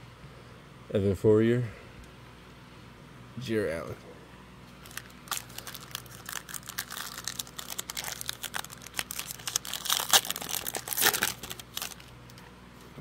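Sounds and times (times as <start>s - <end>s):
foil wrapper tearing and crinkling: 4.8s - 12.4s.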